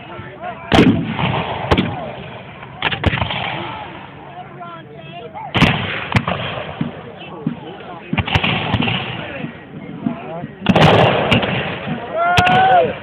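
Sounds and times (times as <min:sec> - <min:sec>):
voices calling: 0:00.0 - 0:13.0
gunshots: 0:00.7 - 0:03.8, 0:05.5 - 0:09.5, 0:10.1 - 0:12.8.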